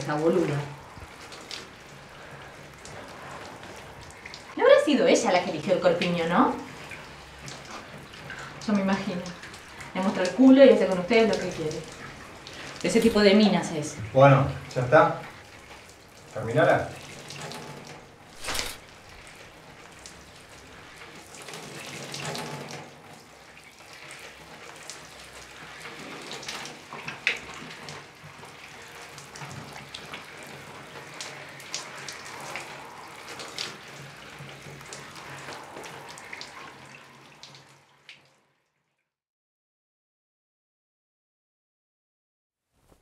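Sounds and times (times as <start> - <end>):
water dripping: 0.0 - 38.5
tap water running into sink: 5.9 - 38.3.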